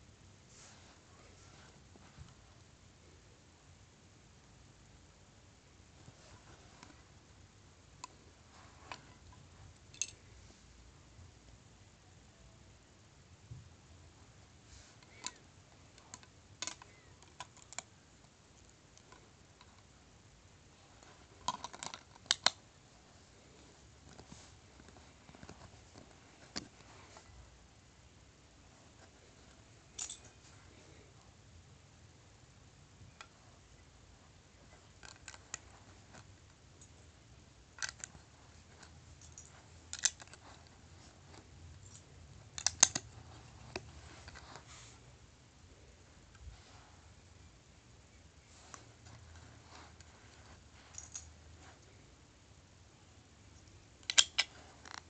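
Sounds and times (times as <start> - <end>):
plastic bricks clicking together: 42.6 - 43.1, 54.0 - 55.0.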